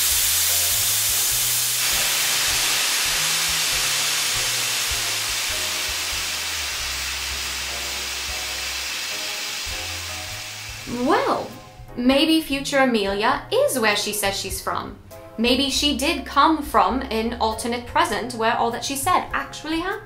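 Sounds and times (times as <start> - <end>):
loud steam-like hiss: 0.0 - 11.7.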